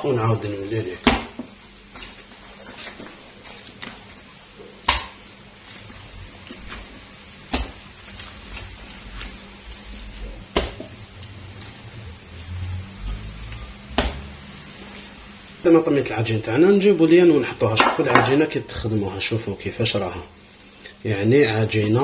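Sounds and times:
dough handling noises: 0.0 - 22.0
dough slapped onto counter: 1.0 - 1.5, 4.8 - 5.2, 7.5 - 7.8, 13.9 - 14.2.

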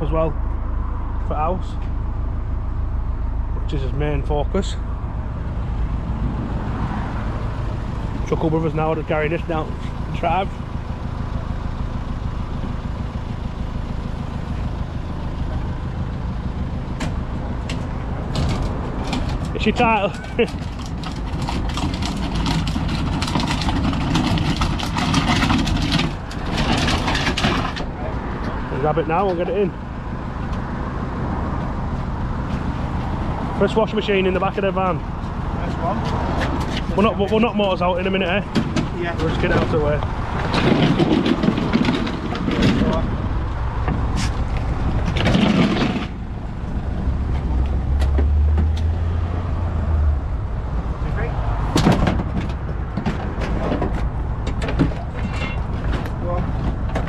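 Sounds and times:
vehicle engine droning: 0.0 - 57.0
knocks and clatter of handling metal: 17.0 - 28.6, 34.4 - 46.3, 51.7 - 57.0
washing machine dragged on tarmac: 21.0 - 28.0.

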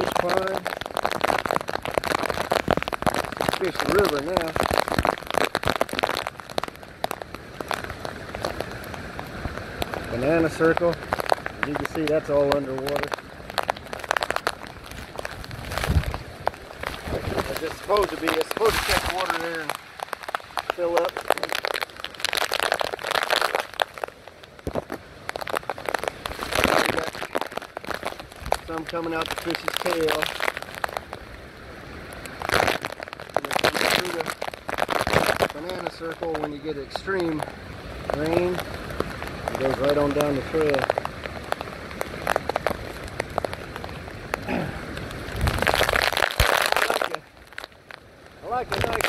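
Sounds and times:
heavy rain: 0.0 - 49.0
hurricane wind: 0.0 - 49.0
wind buffeting microphone: 12.4 - 21.8, 24.6 - 28.8, 37.7 - 46.2.

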